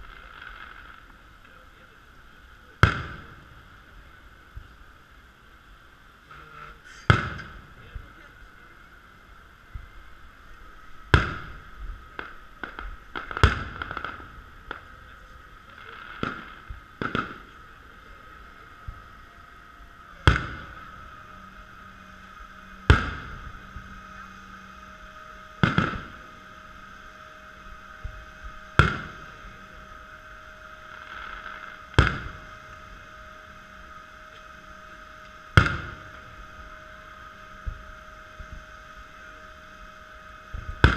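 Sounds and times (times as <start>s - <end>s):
steady high-pitched hum: 0.0s - 40.9s
small firework pops: 2.8s - 3.4s, 7.0s - 8.1s, 11.1s - 15.0s, 15.7s - 17.6s, 20.3s - 20.8s, 22.9s - 23.4s, 25.6s - 26.2s, 28.8s - 29.2s, 31.0s - 32.4s, 35.2s - 36.2s, 40.5s - 40.9s
firework shells bursting: 2.8s - 3.7s, 6.3s - 8.1s, 11.1s - 18.0s, 20.2s - 21.0s, 22.8s - 23.9s, 25.6s - 26.4s, 27.6s - 29.6s, 30.8s - 32.9s, 35.2s - 36.7s, 40.5s - 40.9s.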